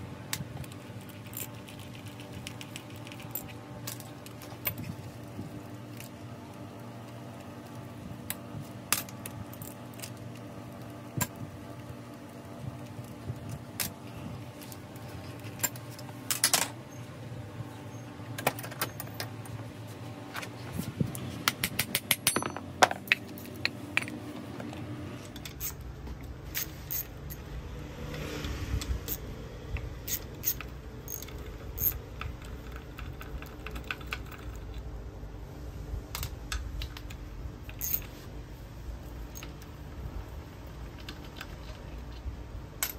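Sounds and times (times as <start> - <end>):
low steady hum: 0.0 - 42.9
metallic clinks and knocks: 21.6 - 24.2.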